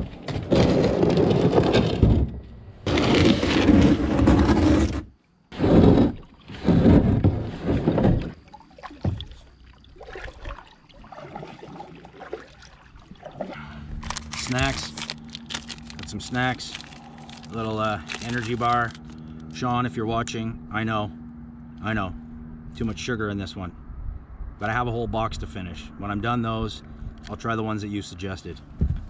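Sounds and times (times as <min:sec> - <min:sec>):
kayak hull scraping on concrete: 0:00.0 - 0:08.4
water and paddle sounds: 0:02.8 - 0:19.4.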